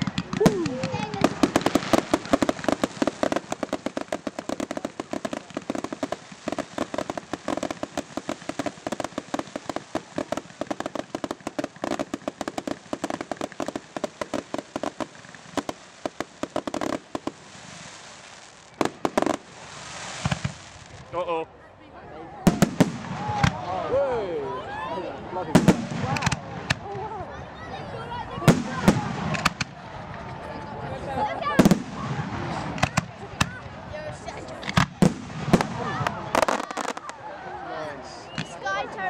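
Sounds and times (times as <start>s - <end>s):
firework shells bursting: 0.0s - 21.0s, 25.6s - 26.8s, 28.5s - 29.8s
firework hiss: 0.0s - 21.1s.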